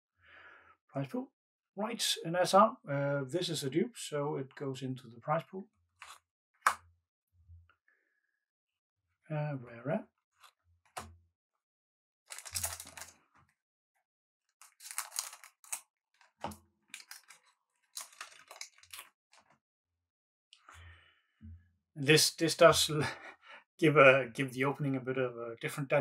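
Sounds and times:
packaging crinkling and rustling: 12.3 - 13.2, 14.6 - 19.5.

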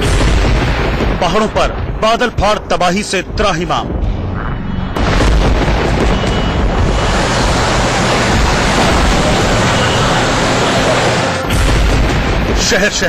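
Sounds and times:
flood torrent roaring: 5.8 - 12.8.

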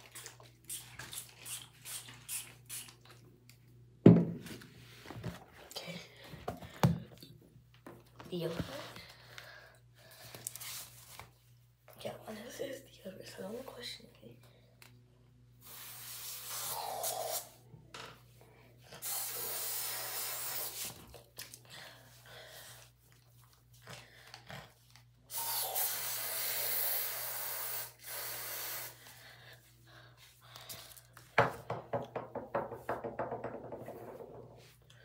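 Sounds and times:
aerosol spray hissing: 15.6 - 17.6, 19.0 - 21.0, 25.3 - 29.0.

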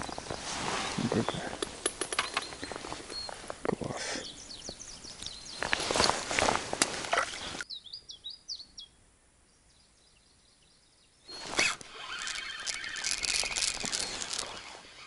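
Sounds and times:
rustling and knocking handling noise: 0.0 - 3.6
small bird chirping: 2.2 - 3.5, 4.2 - 6.1, 7.2 - 15.0.

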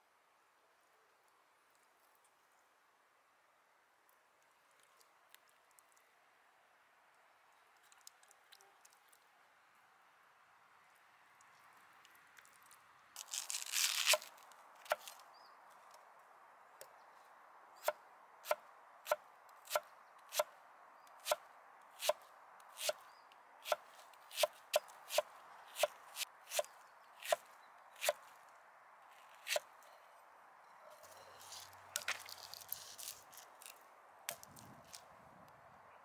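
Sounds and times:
rustling: 12.4 - 15.2, 30.9 - 35.1
knife slicing onion on wooden board: 17.8 - 20.5, 21.2 - 21.4, 22.8 - 23.0, 23.6 - 28.2, 29.4 - 29.7.

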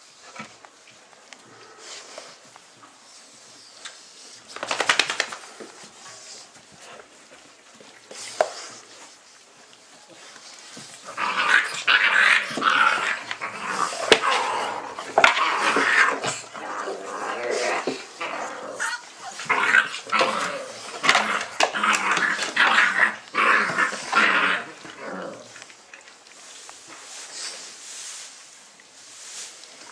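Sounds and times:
puppies yelping and growling: 10.5 - 25.6.

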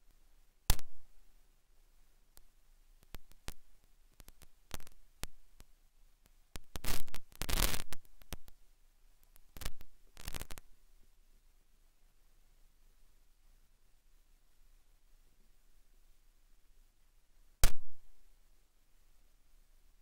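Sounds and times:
firework pops and crackles: 0.7 - 1.1, 3.0 - 5.7, 6.6 - 8.6, 9.2 - 10.7, 17.6 - 18.1.

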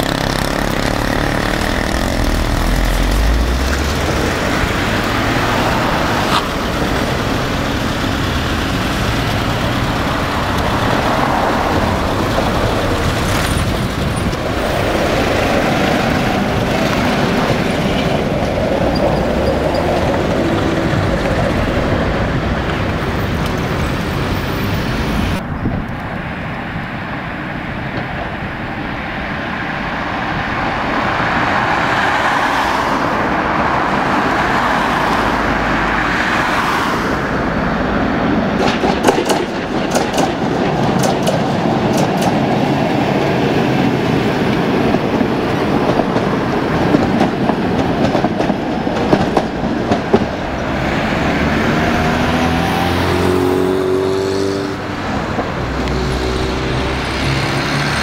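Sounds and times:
wheels clicking over rail joints: 0.0 - 24.8, 38.5 - 51.4
tram wheels rumbling on rails: 0.0 - 58.0.

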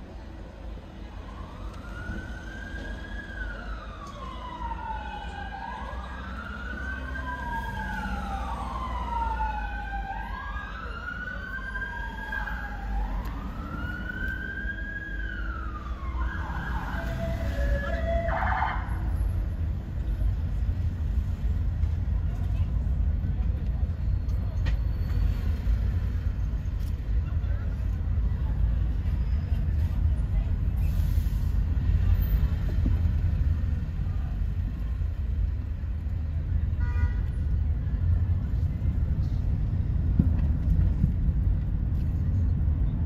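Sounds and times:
city traffic rumble: 0.0 - 43.0
police sirens wailing: 1.1 - 19.3.

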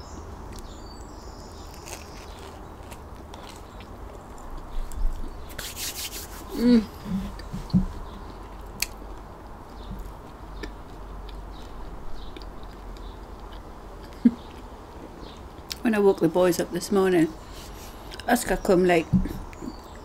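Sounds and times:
crunchy bite of bread crust: 1.5 - 4.5
chewing with lip clicks: 1.6 - 5.4, 8.2 - 14.7
person humming mm: 6.5 - 7.4.

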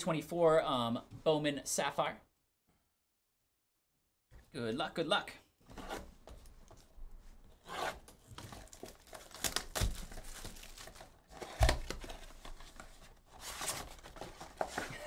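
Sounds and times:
cardboard box tearing and crinkling: 7.6 - 14.9.

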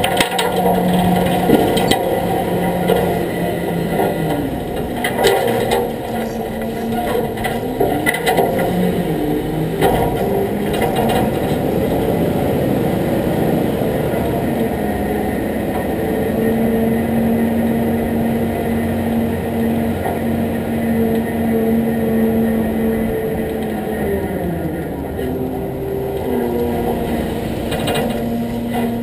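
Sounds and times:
rattling knocks: 0.0 - 8.9
steady low hum: 0.0 - 29.0
truck engine running: 0.0 - 29.0.

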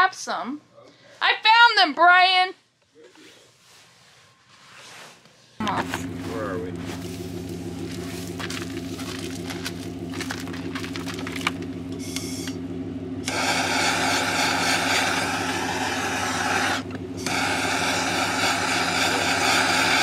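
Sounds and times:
gas torch flame hissing: 13.2 - 20.0.

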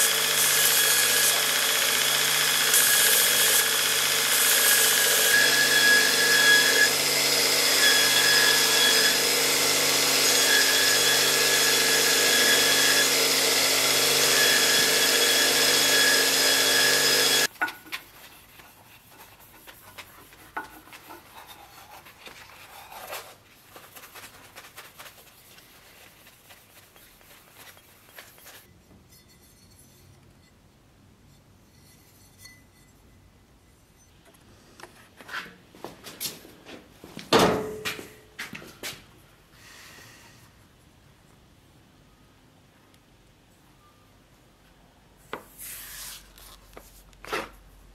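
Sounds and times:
belt grinder grinding steel: 0.0 - 17.5
rubbing and handling noises: 17.5 - 30.3, 45.3 - 47.9.

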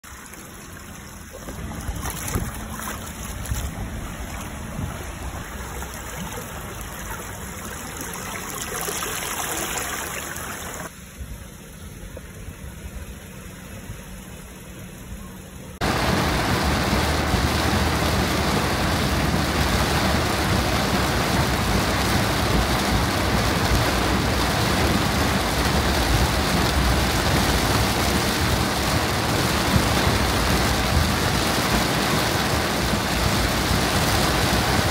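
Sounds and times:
water pouring into storm drain: 0.0 - 10.9, 15.8 - 34.9
car road noise: 0.1 - 34.9
heavy rain pelting a car: 15.6 - 34.9.

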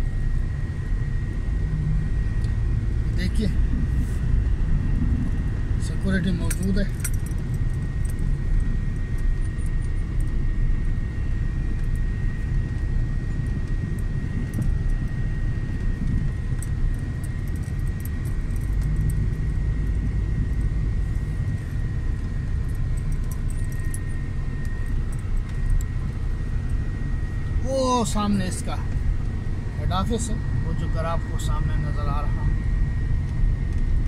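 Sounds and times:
car engine and road rumble: 0.0 - 34.0
high-pitched whine: 0.0 - 34.0.

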